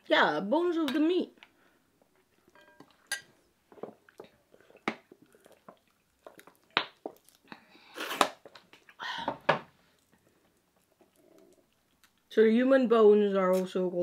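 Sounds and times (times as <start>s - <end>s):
chewing and lip smacks: 4.0s - 9.0s, 9.9s - 12.3s.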